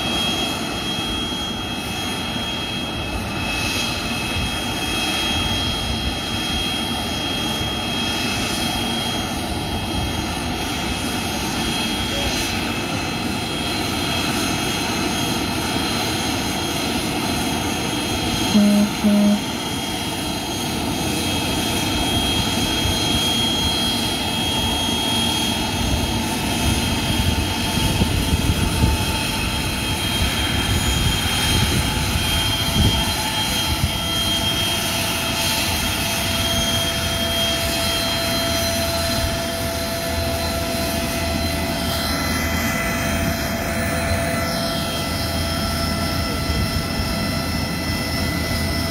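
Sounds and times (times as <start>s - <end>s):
aircraft engines running: 0.0s - 48.9s
short beeps: 18.5s - 19.5s
high tones: 18.6s - 19.5s.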